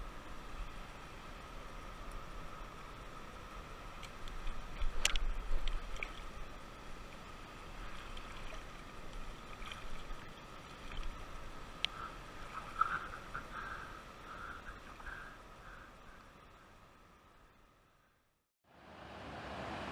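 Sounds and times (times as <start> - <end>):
light clicks: 4.0 - 6.2
river water lapping against rocks: 7.2 - 15.4.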